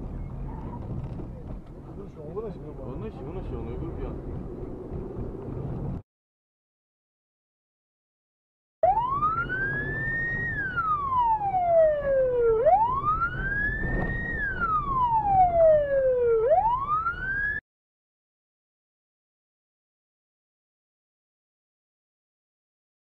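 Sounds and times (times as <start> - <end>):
low rumble: 0.0 - 6.0
police siren wailing: 8.8 - 17.6.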